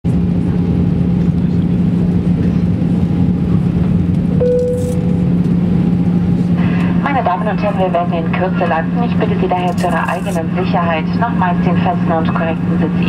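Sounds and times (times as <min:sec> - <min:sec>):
aircraft cabin engine rumble: 0:00.1 - 0:13.0
constant low hum: 0:00.1 - 0:13.0
steady higher tone: 0:04.4 - 0:06.3.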